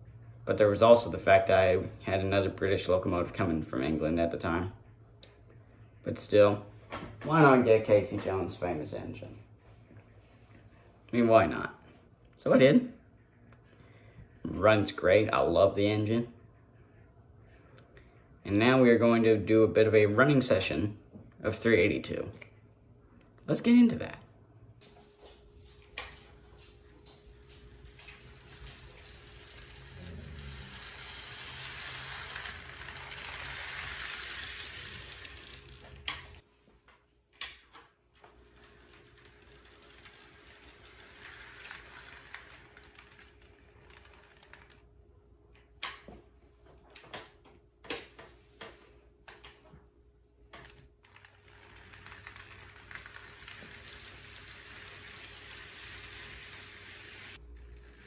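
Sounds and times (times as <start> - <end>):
model train motor and wheels whirring: 27.5 - 36.4, 38.2 - 44.9, 50.6 - 58.0.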